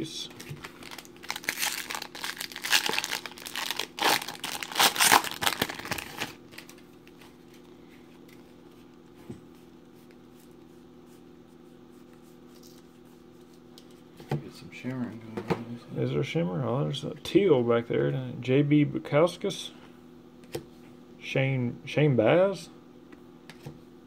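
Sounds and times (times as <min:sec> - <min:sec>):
foil wrapper tearing and crinkling: 0:00.4 - 0:06.8.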